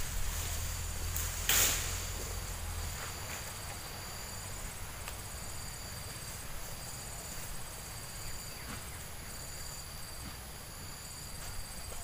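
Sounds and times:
wind rumble on microphone: 0.0 - 1.5
insect chorus: 0.0 - 12.0.

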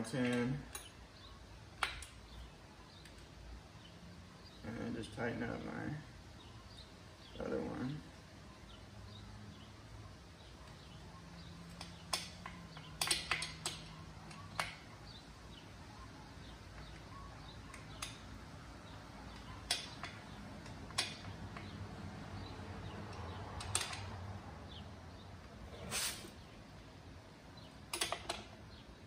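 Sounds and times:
wrench clicking on bolt: 11.7 - 14.8.

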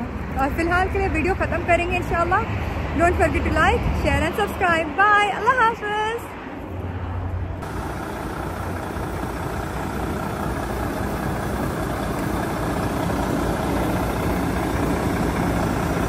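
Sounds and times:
truck diesel engine idling: 7.6 - 16.0.

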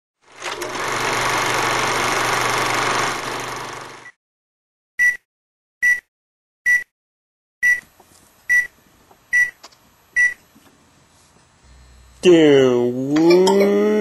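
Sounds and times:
whirring with low hum: 7.6 - 14.0.

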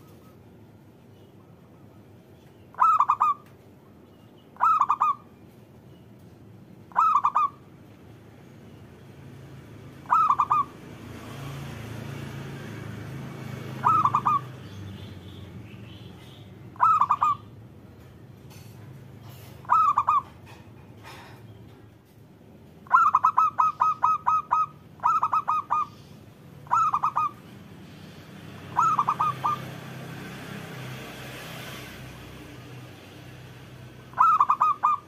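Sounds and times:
dove cooing: 2.8 - 3.5, 4.6 - 5.2, 6.9 - 7.6, 10.0 - 10.7, 13.7 - 14.6, 16.8 - 17.5, 19.2 - 21.2, 22.8 - 27.5, 28.7 - 29.8, 34.1 - 35.0.

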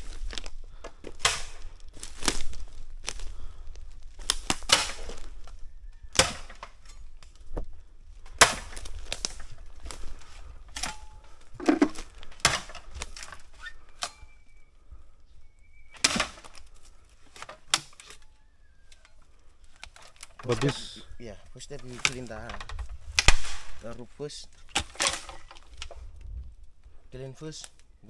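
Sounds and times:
footsteps crunching dry leaves: 0.0 - 5.7
dry stems cracking: 0.0 - 14.5, 15.9 - 26.3, 27.4 - 28.0.

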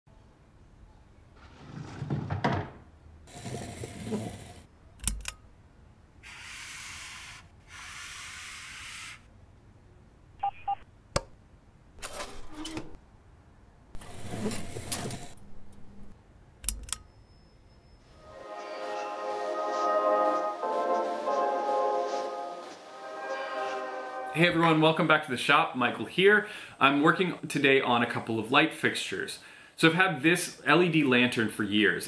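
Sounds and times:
scraping and rustling: 1.4 - 4.6
long hisses: 6.2 - 9.3.

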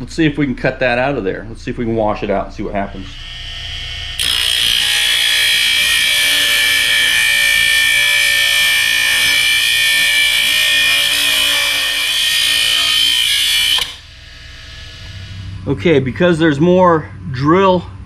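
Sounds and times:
bench grinder grinding metal: 3.0 - 15.5.

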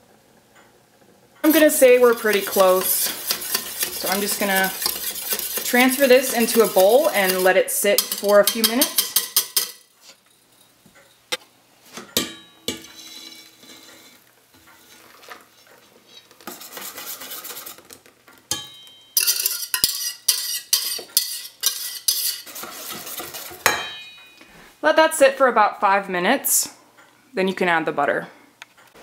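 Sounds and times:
metal whisk clinking in bowl: 1.4 - 9.9, 18.5 - 24.1
whisking and scraping in bowl: 1.4 - 10.3, 12.8 - 18.1, 19.2 - 23.7.

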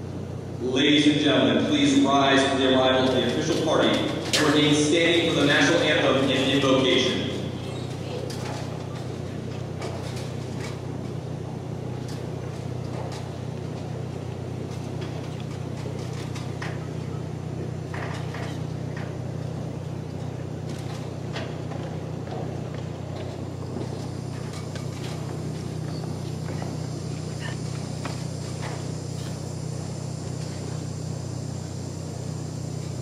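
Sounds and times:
low crowd hum: 0.0 - 33.0
shuffles and footsteps: 20.2 - 29.4.

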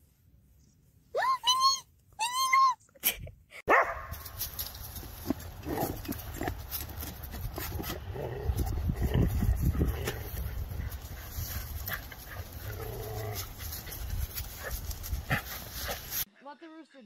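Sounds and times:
dogs scuffling: 4.1 - 16.3.

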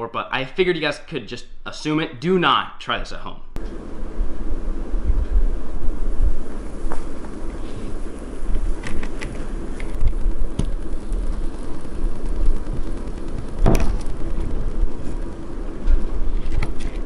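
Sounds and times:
low rumble: 3.8 - 17.0
hot knife sizzling through plastic: 6.3 - 17.0
sharp pops: 8.8 - 17.0.

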